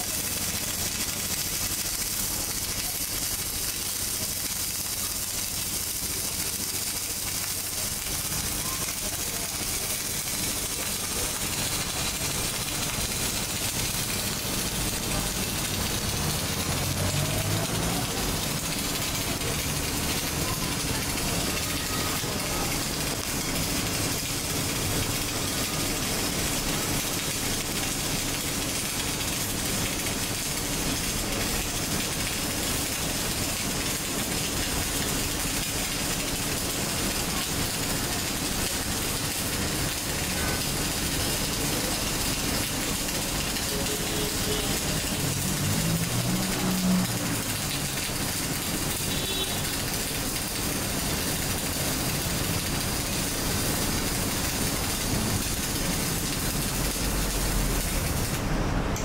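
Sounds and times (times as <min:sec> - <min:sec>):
welding arc hissing: 0:00.0 - 0:28.5, 0:48.6 - 0:58.5.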